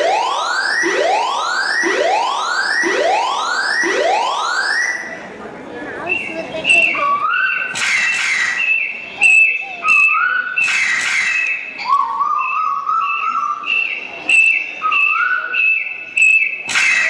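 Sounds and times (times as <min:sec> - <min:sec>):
whistle sound effects: 0:06.0 - 0:17.0.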